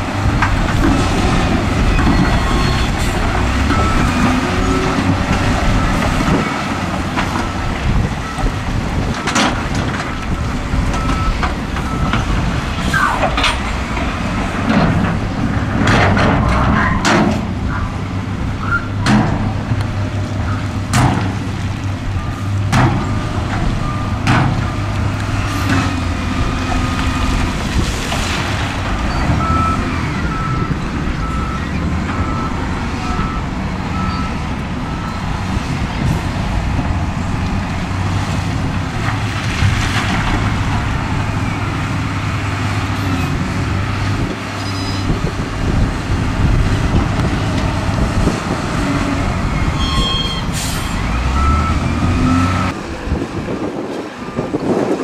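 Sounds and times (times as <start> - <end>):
diesel engines under load: 0.0 - 55.0
reversing alarm beeping: 3.7 - 4.8, 51.3 - 52.8.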